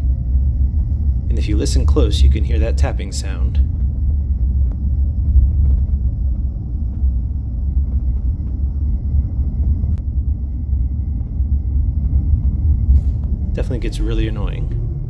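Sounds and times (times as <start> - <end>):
road rumble inside car: 0.0 - 15.0.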